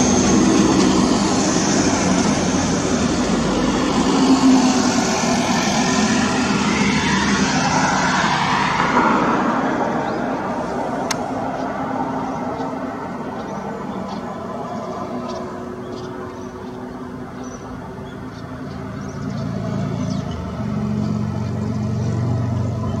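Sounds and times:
traffic rumble: 0:00.0 - 0:23.0
vehicle passing by: 0:00.0 - 0:23.0.

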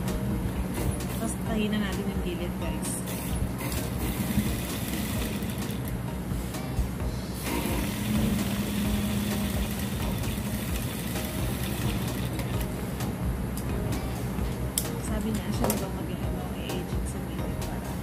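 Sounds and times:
industrial sewing machine running: 0:03.2 - 0:05.9, 0:07.4 - 0:12.6.

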